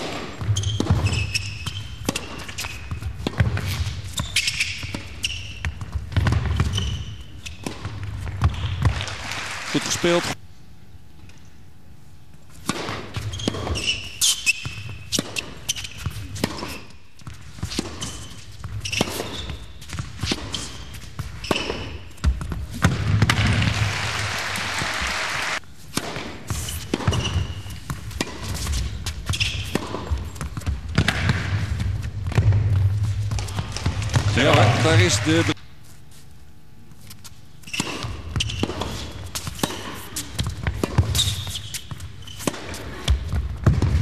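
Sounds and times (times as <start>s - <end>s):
racket hitting tennis ball: 0.0s - 9.0s, 12.6s - 23.8s, 25.8s - 35.5s, 37.7s - 44.0s
tennis ball bouncing: 0.0s - 9.1s, 12.6s - 23.8s, 25.9s - 35.5s, 37.6s - 44.0s
applause: 8.9s - 10.4s, 23.4s - 25.6s, 34.3s - 35.6s.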